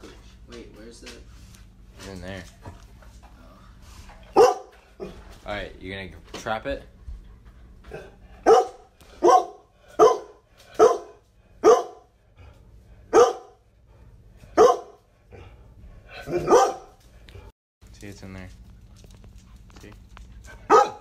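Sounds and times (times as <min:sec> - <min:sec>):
dog barking: 0:04.3 - 0:05.2, 0:07.9 - 0:12.1, 0:13.1 - 0:13.6, 0:14.6 - 0:15.0, 0:16.1 - 0:17.0, 0:20.6 - 0:21.0.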